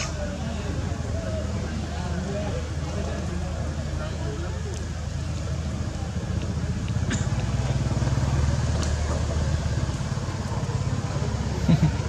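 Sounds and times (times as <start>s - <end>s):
motor engine droning: 5.6s - 12.0s.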